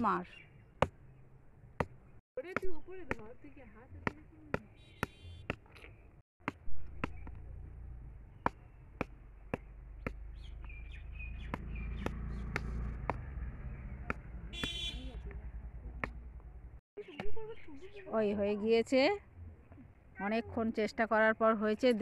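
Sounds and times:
hard fruit knocking on brick steps: 0:00.8 - 0:01.1, 0:01.8 - 0:13.4, 0:14.0 - 0:15.0, 0:15.9 - 0:16.5.

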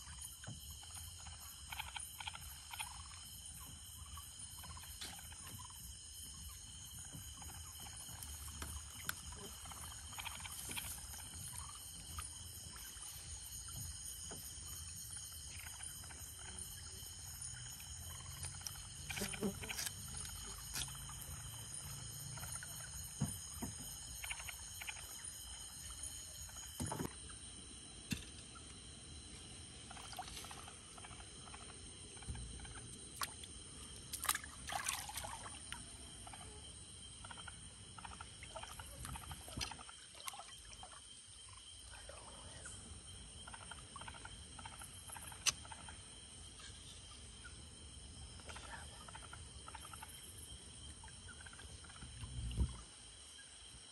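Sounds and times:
night insects chorus: 0:00.0 - 0:53.9
water splashing and trickling: 0:33.1 - 0:36.1, 0:38.4 - 0:41.0.

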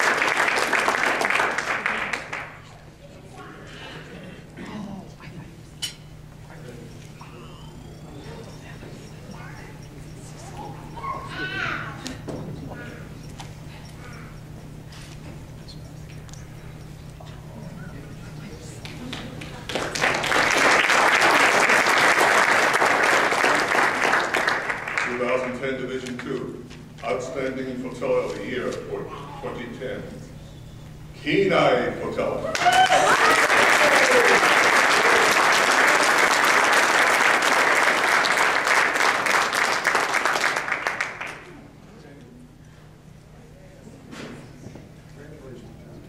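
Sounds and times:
audience applauding: 0:00.0 - 0:02.8, 0:18.8 - 0:25.6, 0:32.5 - 0:41.7.

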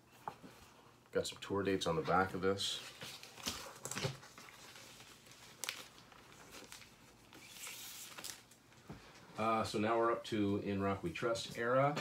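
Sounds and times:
cardboard and paper rustling: 0:02.1 - 0:09.2.

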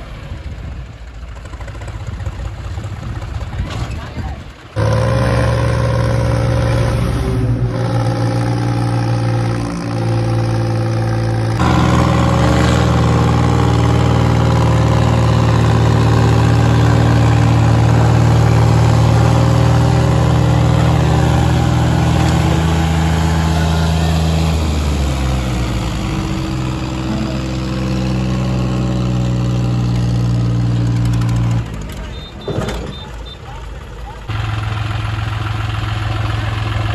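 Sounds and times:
tractor diesel engines running hard: 0:00.0 - 0:36.9.

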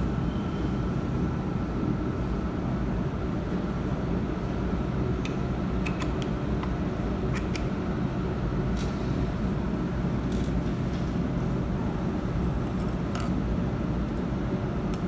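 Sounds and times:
machinery hum: 0:00.0 - 0:15.0.

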